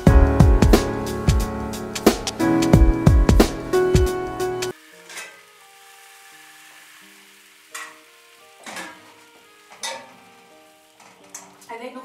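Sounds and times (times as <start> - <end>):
soundtrack music with drum beat: 0.0 - 4.7
pan sizzling: 0.0 - 12.0
soft music with held notes: 0.0 - 12.0.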